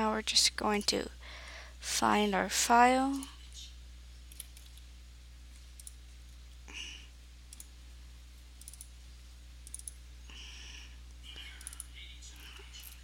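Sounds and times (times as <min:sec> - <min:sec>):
low electrical hum: 0:00.0 - 0:13.0
computer mouse buttons clicking: 0:08.6 - 0:08.9, 0:09.6 - 0:10.0, 0:11.6 - 0:11.9.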